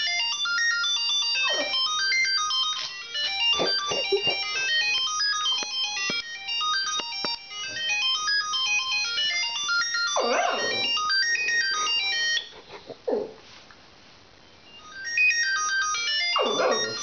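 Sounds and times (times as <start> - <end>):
phone ringtone melody: 0.0 - 12.6, 14.7 - 17.0
dog howling: 10.2 - 11.0, 16.4 - 17.0.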